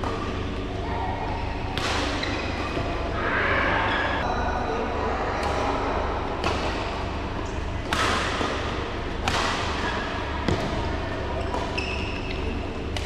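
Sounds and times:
steady low hum: 0.0s - 13.0s
rackets hitting shuttlecock: 1.7s - 2.9s, 6.3s - 13.0s.

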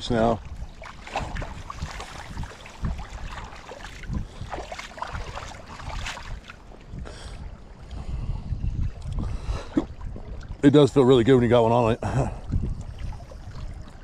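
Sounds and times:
water: 0.0s - 14.0s
wind: 0.0s - 14.0s
small splashes and knocks: 0.4s - 7.0s.

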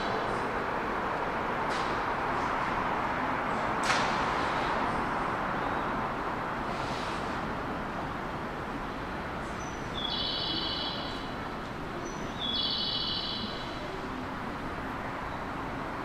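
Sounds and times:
station platform noise: 0.0s - 16.0s
bird-like chirping call: 9.9s - 11.3s, 12.3s - 13.6s.

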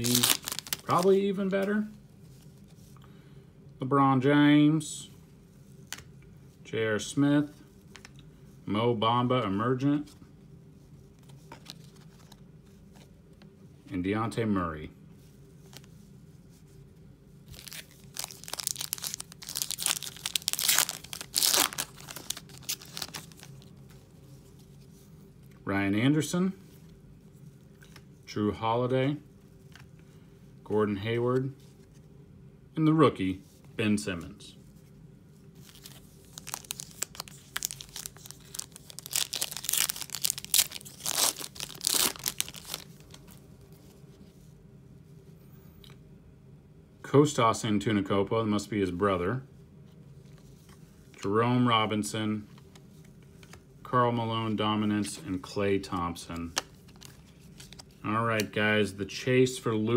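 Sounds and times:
foil wrapper crinkling and tearing: 0.0s - 1.2s, 17.5s - 23.7s, 35.6s - 43.2s.

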